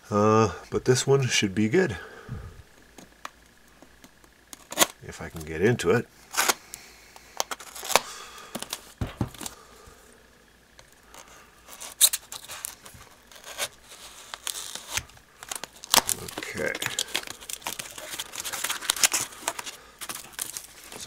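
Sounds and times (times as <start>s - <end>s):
plastic crinkling and tearing: 7.4s - 9.6s, 11.1s - 21.0s
knife slitting packing tape: 11.7s - 20.7s.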